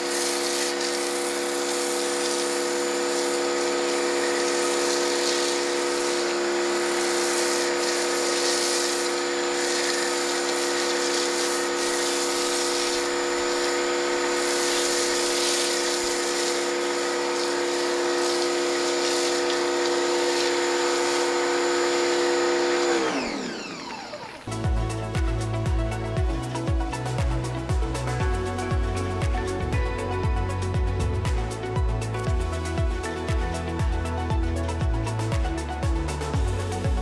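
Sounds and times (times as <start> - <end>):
foam cannon spraying hiss: 0.0 - 23.3
pressure washer motor whine: 0.0 - 37.0.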